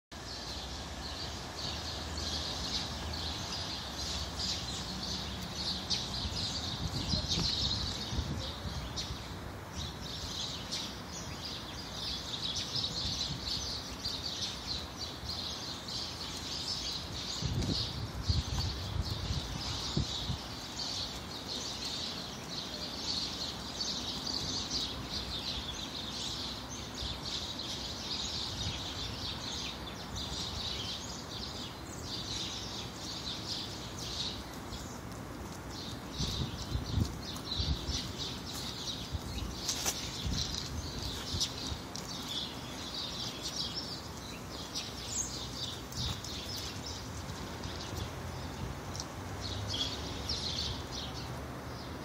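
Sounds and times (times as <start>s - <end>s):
small birds chirping: 0.1s - 52.0s.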